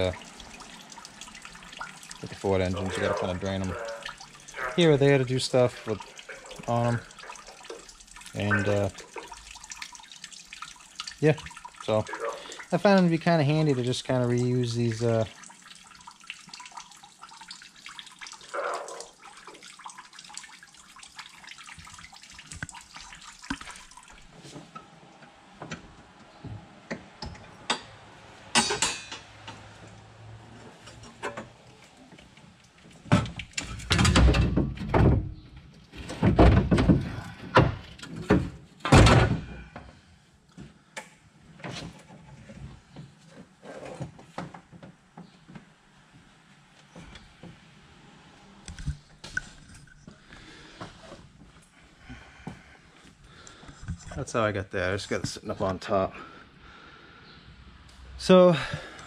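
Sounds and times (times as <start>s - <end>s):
liquid pouring into plastic jug: 0.0s - 24.4s.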